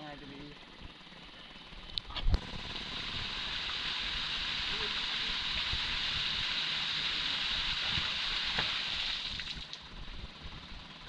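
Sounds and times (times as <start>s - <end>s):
water jetting and splashing: 2.3s - 9.8s
stream flowing: 2.4s - 9.8s.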